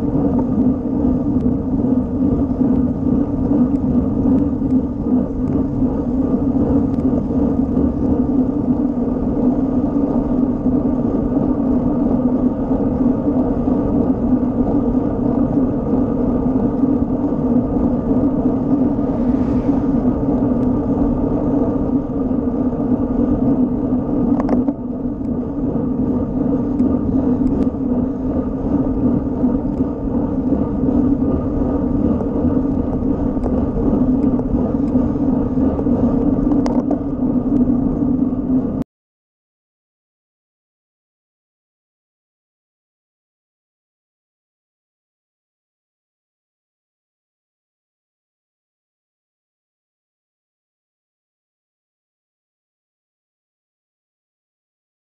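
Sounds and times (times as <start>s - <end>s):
road tyre noise: 0.0s - 38.8s
wind rush: 0.0s - 38.8s.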